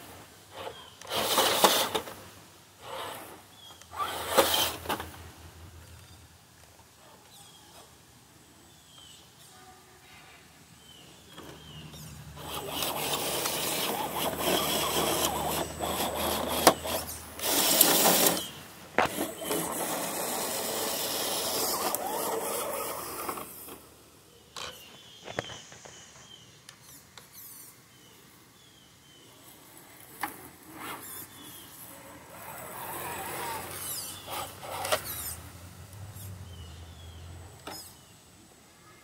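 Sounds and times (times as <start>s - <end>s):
small electric motor whirring: 0.5s - 2.2s, 2.8s - 5.2s, 11.7s - 23.8s, 30.7s - 38.1s.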